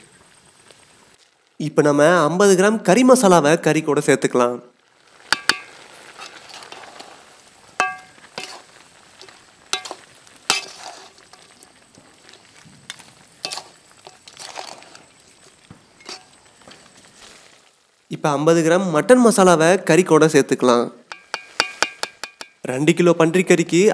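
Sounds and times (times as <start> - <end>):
meat sizzling in a pan: 4.2 - 18.2, 21.0 - 22.6
metal spatula scraping a pan: 5.2 - 11.6, 12.2 - 15.2, 16.0 - 16.4
metal pan ringing: 5.3 - 5.8, 7.8 - 8.2, 21.1 - 22.6.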